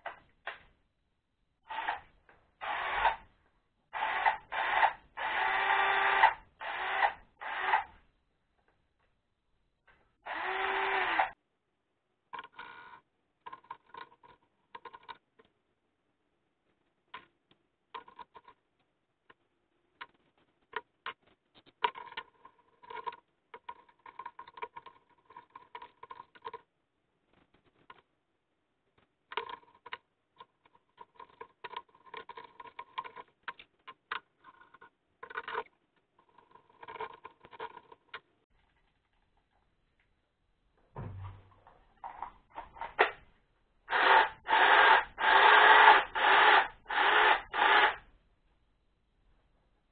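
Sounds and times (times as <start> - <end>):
clicks and rattles of plastic parts: 13.4 - 15.6, 17.1 - 26.7, 28.9 - 40.1.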